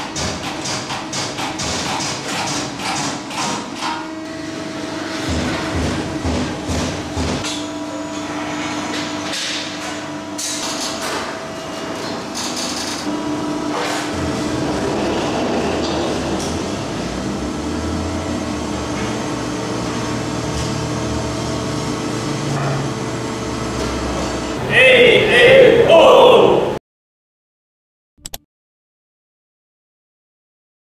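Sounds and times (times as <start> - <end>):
machine hum: 4.2 - 26.8.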